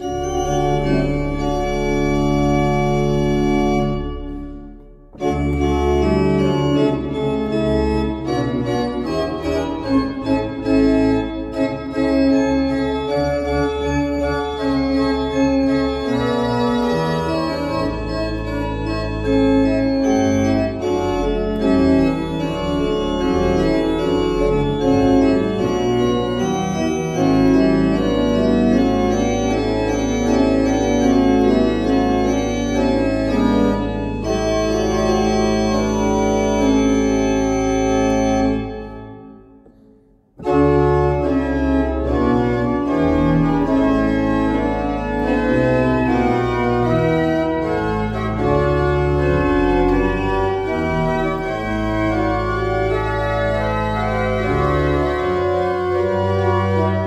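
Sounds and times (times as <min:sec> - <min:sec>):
pipe organ improvisation: 0:00.0 - 0:39.7, 0:40.3 - 0:57.0
held low organ bass note: 0:00.1 - 0:08.3.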